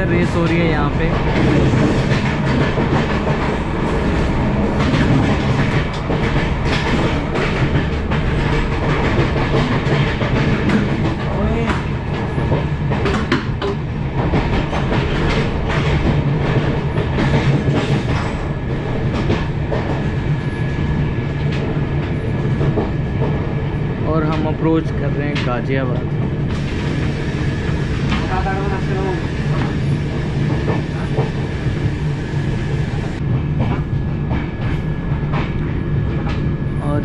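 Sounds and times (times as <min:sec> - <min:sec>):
wheels clacking over rails: 0:00.0 - 0:20.6
train coach rumble: 0:00.0 - 0:37.0.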